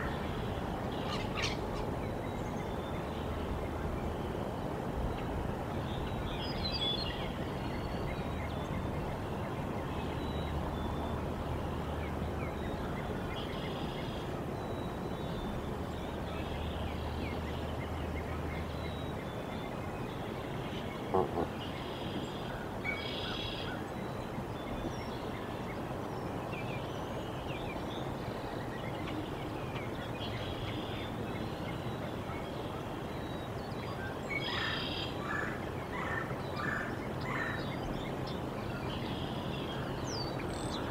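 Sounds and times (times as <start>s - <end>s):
outdoor background hiss: 0.0s - 40.9s
songbird chirps: 0.0s - 40.9s
goose honking: 21.1s - 21.6s.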